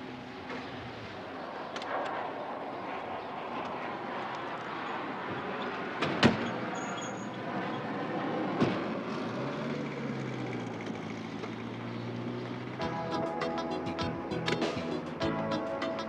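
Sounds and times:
traffic noise: 0:00.0 - 0:16.0.

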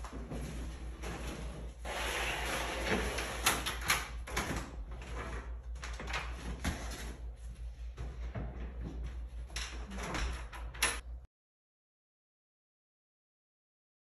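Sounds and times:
door unlocking clicks and knocks: 0:09.5 - 0:11.1.

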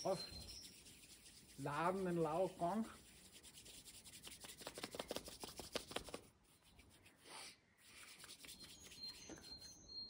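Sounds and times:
palms rubbing together: 0:00.0 - 0:09.8.

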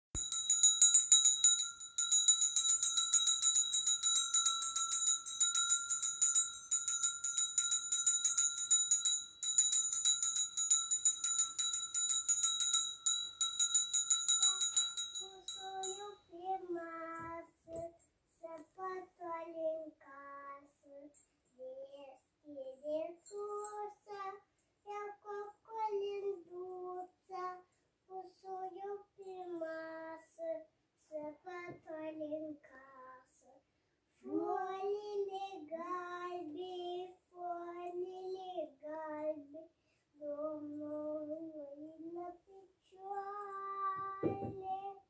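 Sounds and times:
jingle bells shaken: 0:00.2 - 0:16.2
young voice singing a carol: 0:14.3 - 0:45.0.

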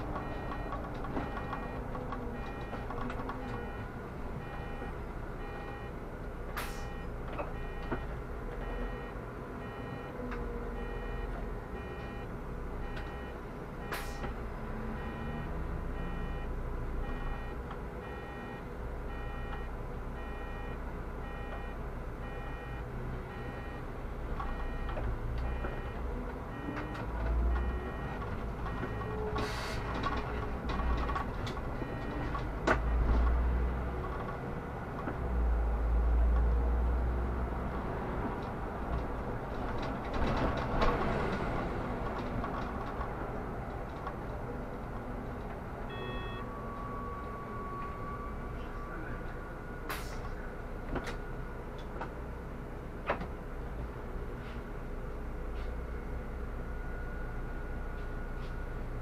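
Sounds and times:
bus engine rumbling: 0:00.0 - 0:59.0
electronic warning beep: 0:02.4 - 0:06.0, 0:06.7 - 0:10.2, 0:10.8 - 0:14.3, 0:14.9 - 0:23.8, 0:24.5 - 0:29.2, 0:31.8 - 0:32.3, 0:45.9 - 0:46.6.

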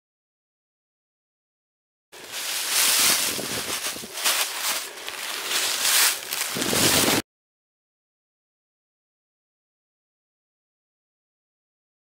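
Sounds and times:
wind gusting across microphone: 0:02.2 - 0:07.2.

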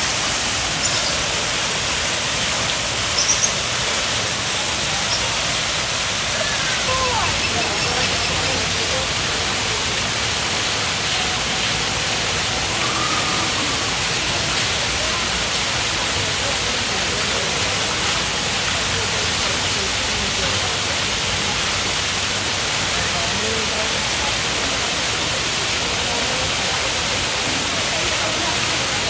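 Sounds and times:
faint distant voices: 0:00.0 - 0:29.0.

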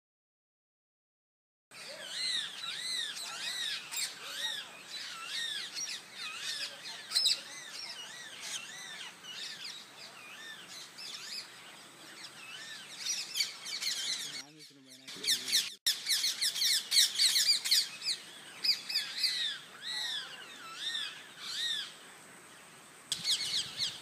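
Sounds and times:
parrots screeching: 0:01.8 - 0:09.8, 0:12.4 - 0:21.9.

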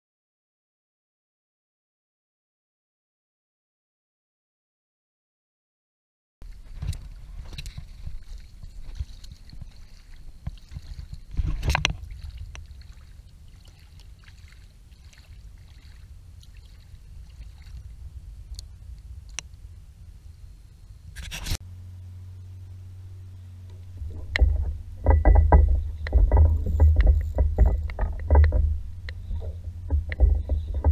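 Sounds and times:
water lapping against paddleboard: 0:06.4 - 0:19.4, 0:23.4 - 0:30.9
water rush: 0:06.4 - 0:21.5
low rumble: 0:06.4 - 0:30.9.

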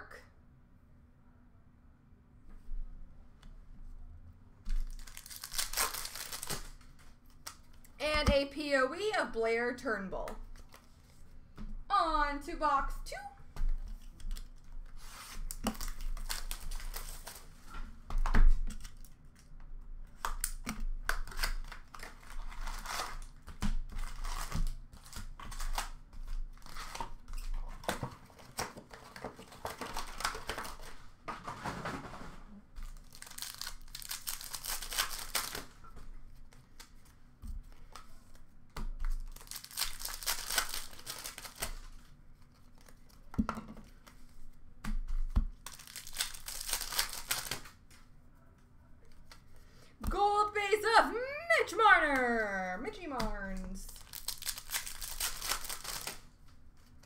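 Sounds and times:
card wrappers tearing and crinkling: 0:04.8 - 0:08.0, 0:13.9 - 0:17.7, 0:18.7 - 0:19.5, 0:20.3 - 0:31.0, 0:32.8 - 0:35.8, 0:39.0 - 0:44.2, 0:45.5 - 0:47.9, 0:53.6 - 0:57.0.

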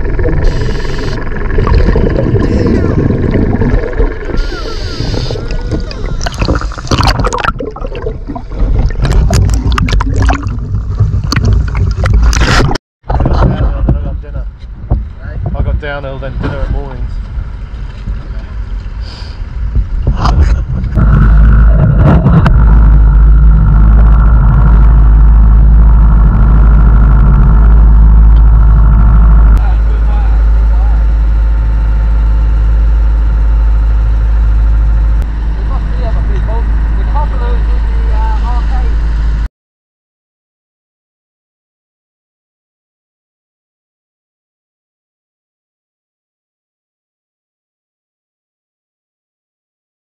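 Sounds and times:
boat engine running loudly: 0:00.0 - 0:12.7, 0:16.2 - 0:39.5
water sloshing and gurgling: 0:00.0 - 0:13.6, 0:19.8 - 0:25.1
low rumble of water: 0:00.0 - 0:39.5
sharp splashes: 0:01.6 - 0:12.8.

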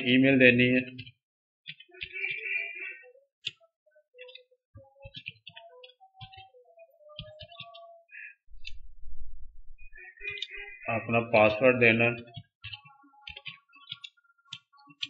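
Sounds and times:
keyboard typing: 0:04.2 - 0:07.9, 0:11.9 - 0:15.0.

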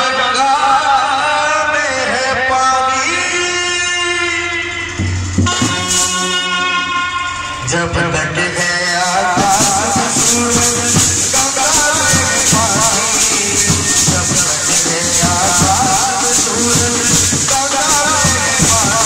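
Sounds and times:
drum beats: 0:04.7 - 0:07.1, 0:08.6 - 0:19.0
trumpets playing melody: 0:05.4 - 0:07.6
shaken rattle: 0:09.0 - 0:19.0.

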